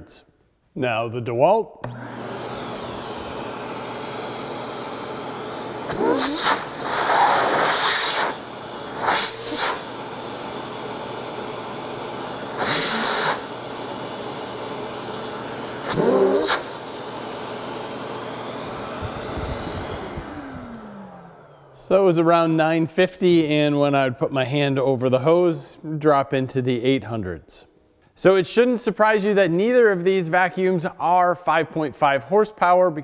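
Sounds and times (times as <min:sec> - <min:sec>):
shop vacuum running: 0:01.8 - 0:25.7
rush of air through hose: 0:05.8 - 0:10.1, 0:12.5 - 0:13.6, 0:15.8 - 0:16.9, 0:18.7 - 0:20.7.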